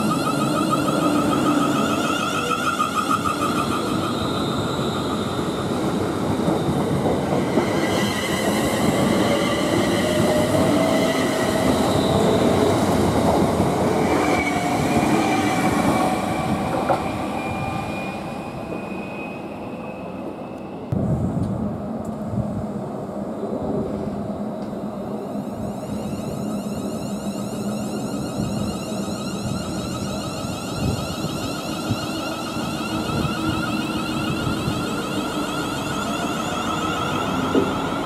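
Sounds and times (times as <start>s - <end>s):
electric train traction whine: 0.0s - 21.0s, 24.6s - 38.0s
train wheels on rails: 0.0s - 22.7s, 23.6s - 38.0s.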